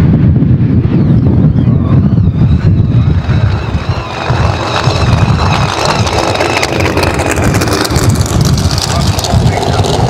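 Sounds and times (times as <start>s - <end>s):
drag car engine running loudly: 3.1s - 10.0s
engine crackling: 3.1s - 10.0s.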